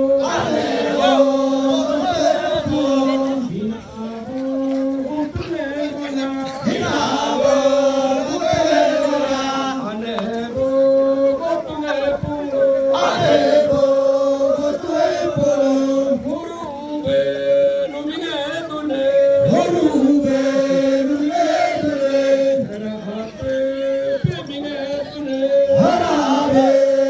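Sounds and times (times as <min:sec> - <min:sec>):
group chanting: 0:00.0 - 0:03.8, 0:06.6 - 0:16.4, 0:18.9 - 0:24.4, 0:25.0 - 0:27.0.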